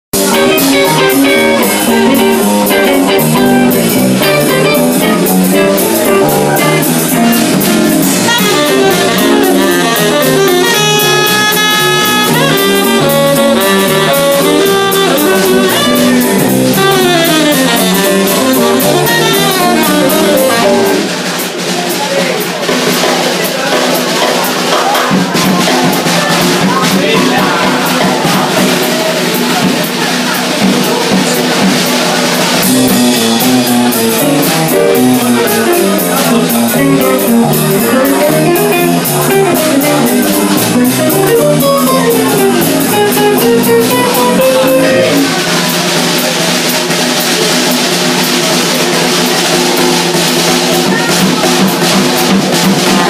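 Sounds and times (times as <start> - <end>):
drum kit and cymbals: 0.1 - 53.0
guitar: 0.1 - 53.0
upright bass: 0.1 - 53.0
saxophone: 0.2 - 21.4, 32.4 - 53.0.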